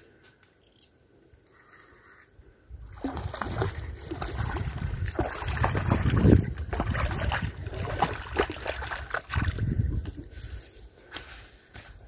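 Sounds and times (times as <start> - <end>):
fish splashing in water: 2.9 - 9.6.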